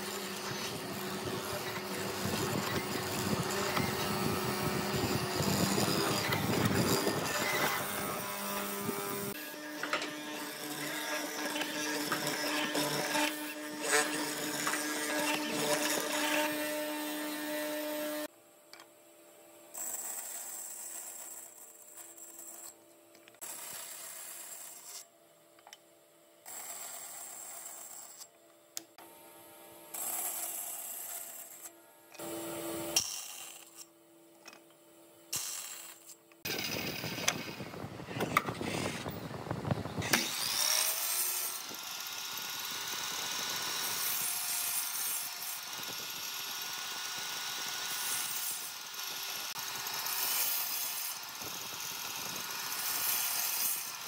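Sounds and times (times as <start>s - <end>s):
bandsaw cutting wood: 0.0s - 18.3s, 35.4s - 54.0s
power saw running with whine: 0.0s - 18.3s, 35.5s - 54.0s.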